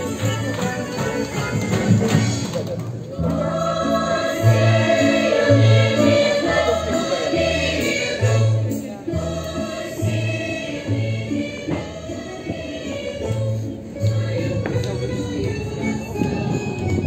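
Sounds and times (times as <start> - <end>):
choir singing: 3.2 - 14.7.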